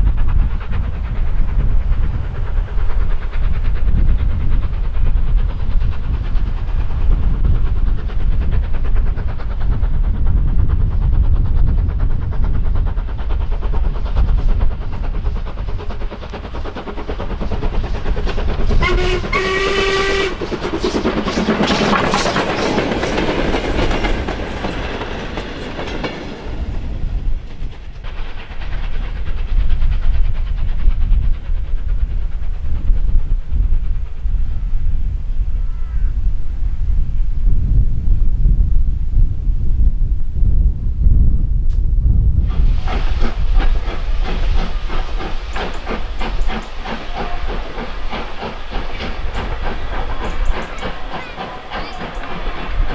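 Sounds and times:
steam train passing: 0.0s - 52.9s
steam whistle blast: 18.8s - 20.4s.

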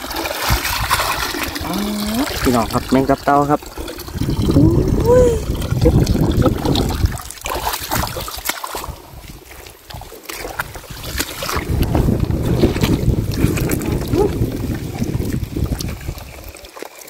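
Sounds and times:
wet weeds and mud rustling: 0.0s - 2.8s, 4.5s - 17.0s
wind buffeting microphone: 3.7s - 7.3s, 8.8s - 16.6s.

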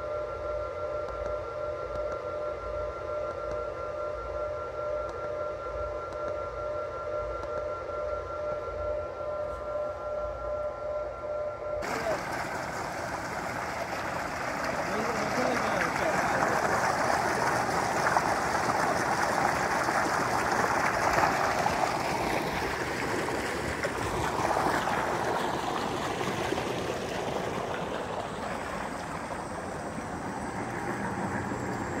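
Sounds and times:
water gushing into tank: 11.8s - 32.0s.

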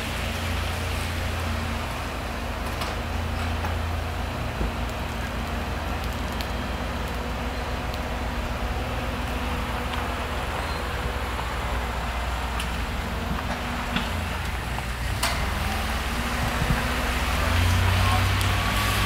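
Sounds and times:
railway station rumble and hiss: 0.0s - 19.0s.

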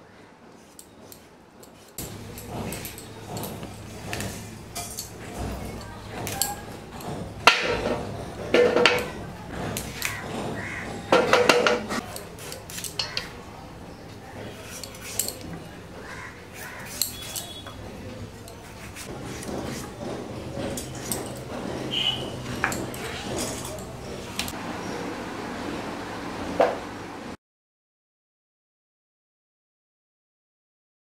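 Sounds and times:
metal pots and utensils clattering: 0.7s - 13.4s, 14.4s - 24.6s.

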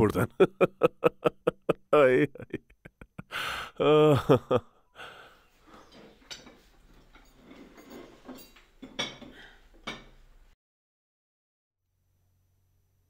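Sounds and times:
cutlery and dishes clinking: 5.7s - 10.2s.

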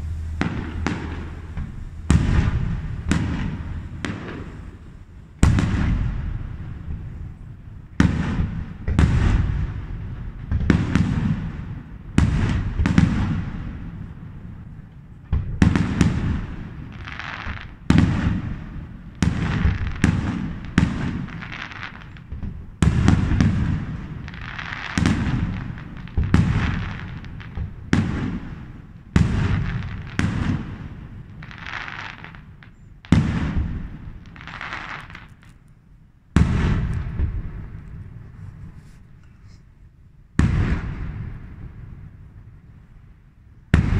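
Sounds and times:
fireworks hiss: 0.0s - 6.0s, 34.3s - 35.5s
fireworks bangs with rolling rumble: 0.0s - 43.9s.

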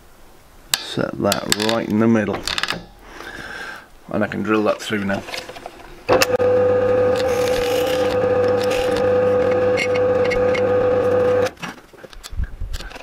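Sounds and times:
drill bit boring through plywood: 6.1s - 11.5s
drill press motor humming: 6.1s - 11.5s.

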